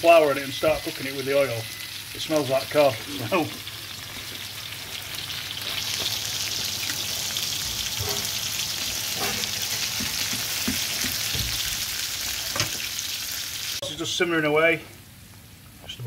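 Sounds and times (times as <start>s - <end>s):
vegetables sizzling in oil: 0.0s - 14.2s
spatula scraping a pan: 9.1s - 11.3s.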